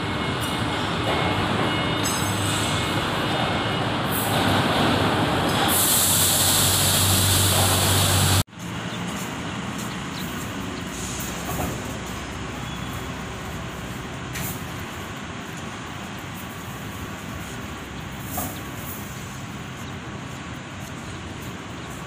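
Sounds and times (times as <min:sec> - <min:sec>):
machinery humming: 0:00.0 - 0:22.0
loud hiss: 0:05.5 - 0:08.4.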